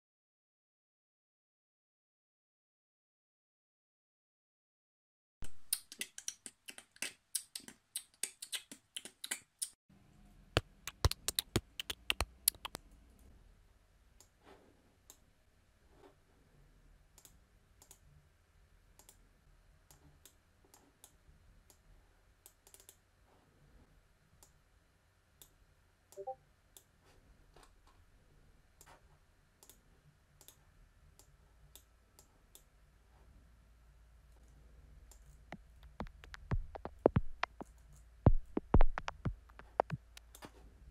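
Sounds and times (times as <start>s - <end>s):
mouse and keyboard clicks: 10.9s - 12.8s, 22.5s - 23.0s.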